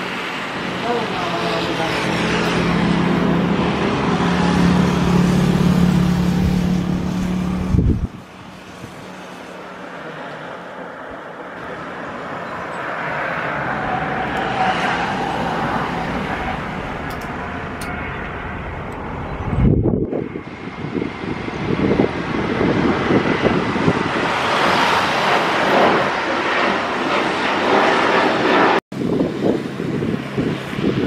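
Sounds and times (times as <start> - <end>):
jet engines at takeoff: 0.0 - 31.0
wind rumble on microphone: 2.0 - 9.1, 13.8 - 31.0
faint rising whine: 11.6 - 20.8.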